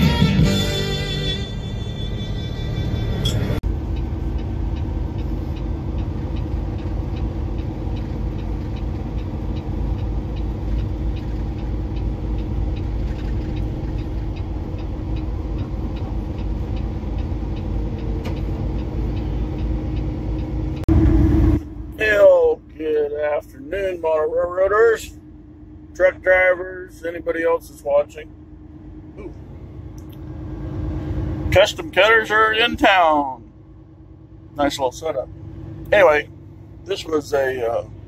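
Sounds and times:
truck cab engine and road drone: 0:00.0 - 0:38.0
light ticking: 0:03.7 - 0:20.9.

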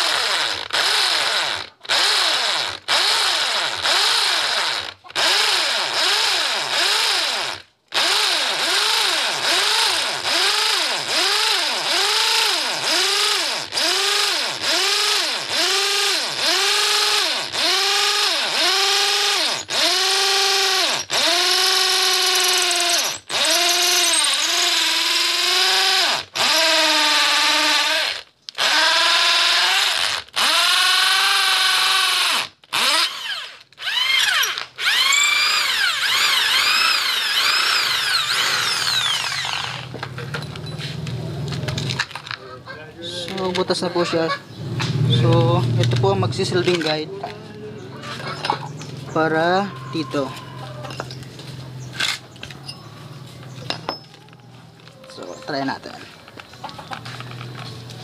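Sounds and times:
electric drill boring into concrete: 0:00.0 - 0:40.0.

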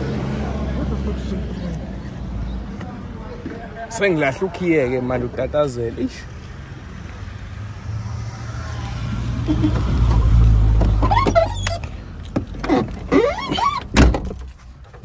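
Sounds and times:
vehicle low rumble: 0:00.0 - 0:15.0
car door slamming: 0:12.6 - 0:14.5.

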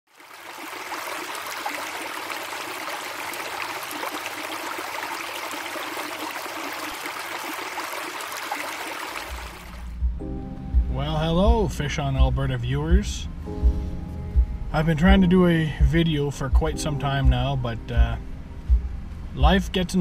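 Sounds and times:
stream water rushing: 0:00.1 - 0:10.0.

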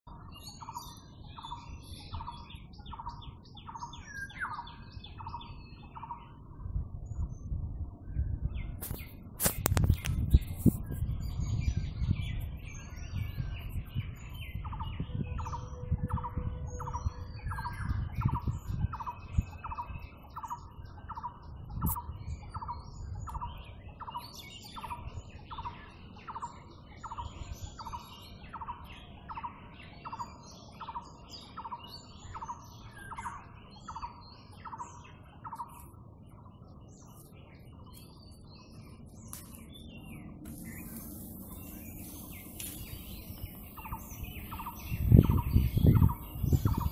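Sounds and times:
birds chirping and twittering: 0:00.0 - 0:46.9.

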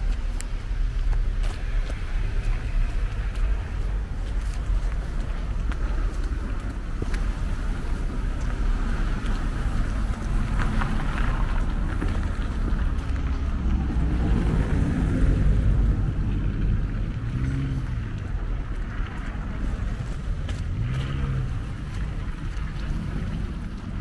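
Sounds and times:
traffic engine rumble: 0:00.0 - 0:24.0
tyre noise on wet road: 0:00.0 - 0:24.0
passing vehicle engine: 0:06.2 - 0:23.8.

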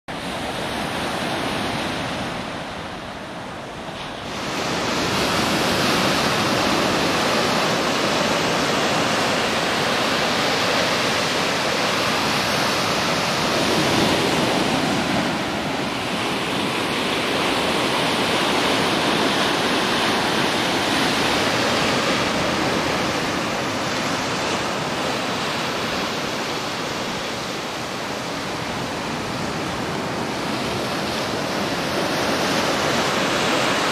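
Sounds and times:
surf washing onto sandy beach: 0:00.2 - 0:33.9.

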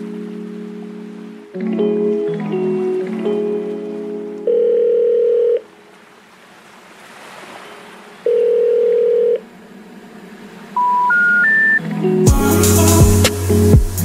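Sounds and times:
long electronic beeps: 0:10.8 - 0:11.8.

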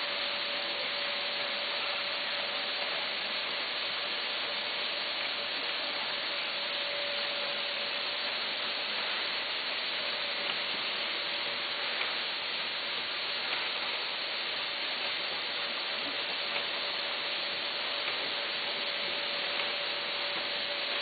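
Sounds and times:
bagging machine hissing: 0:00.0 - 0:21.0
faint machine hum: 0:00.0 - 0:21.0
faint clicks: 0:10.3 - 0:21.0.

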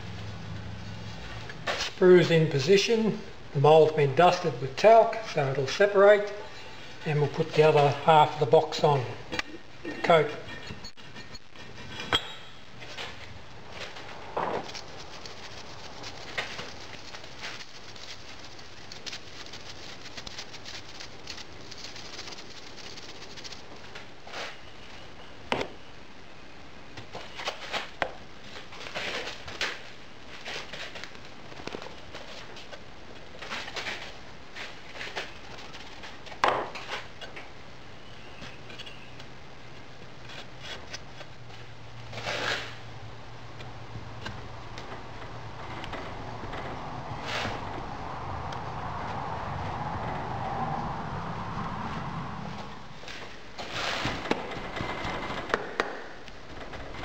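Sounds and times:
sand pattering through sieve: 0:13.9 - 0:24.6.

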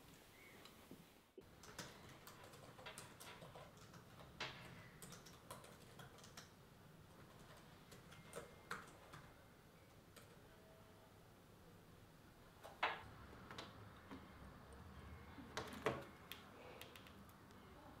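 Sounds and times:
laptop keyboard typing: 0:01.4 - 0:10.5, 0:15.4 - 0:17.6.

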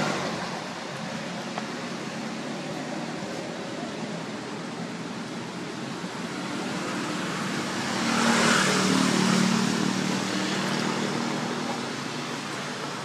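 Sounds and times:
motor vehicle passing by: 0:06.5 - 0:13.0.

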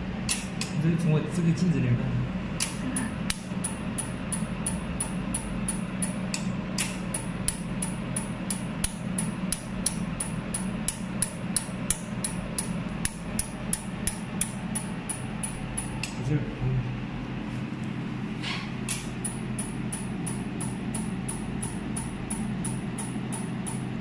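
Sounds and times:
machine hum: 0:00.0 - 0:24.0
laser welder pulse snaps: 0:00.2 - 0:00.8.

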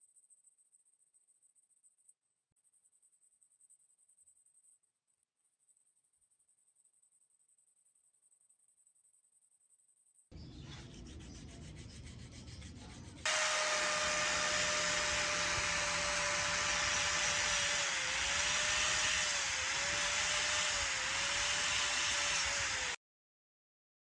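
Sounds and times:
rapid rubbing: 0:10.5 - 0:23.0
angle grinder grinding steel: 0:13.2 - 0:23.0.

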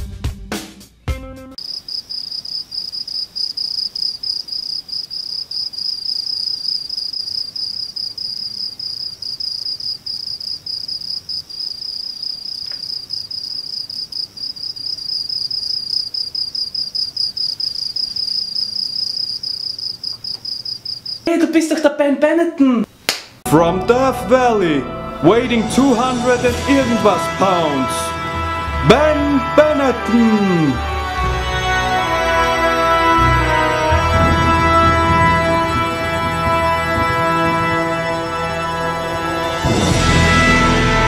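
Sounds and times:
crickets chirping: 0:01.6 - 0:21.3.

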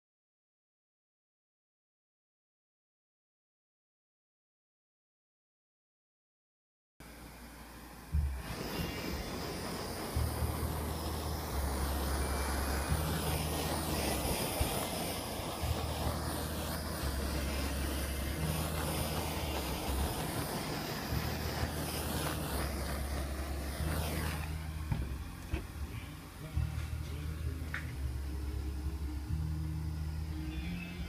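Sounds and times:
low rumble: 0:07.0 - 0:31.0
torch flame hissing: 0:07.0 - 0:31.0.

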